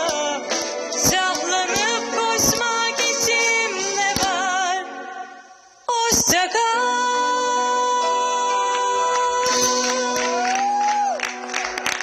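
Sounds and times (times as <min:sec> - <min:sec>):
live band playing: 0:00.0 - 0:05.4, 0:06.9 - 0:12.0
woman singing into a microphone: 0:00.0 - 0:11.2
applause and cheering: 0:08.7 - 0:12.0.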